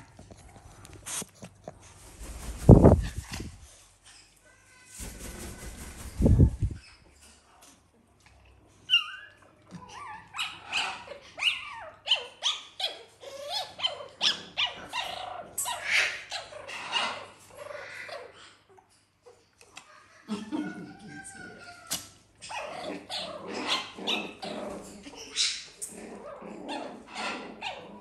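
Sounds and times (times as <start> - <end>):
dog whining and yelping: 8.9 - 17.2.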